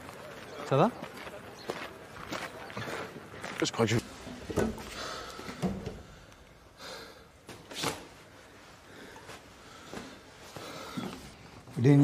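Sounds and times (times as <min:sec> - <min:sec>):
man breathing hard: 0:04.8 - 0:07.4, 0:08.7 - 0:11.3.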